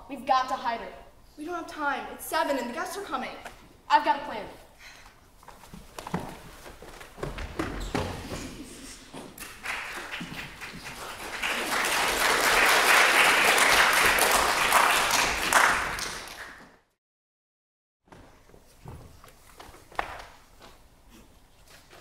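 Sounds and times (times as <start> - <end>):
audience applauding: 9.4 - 16.7.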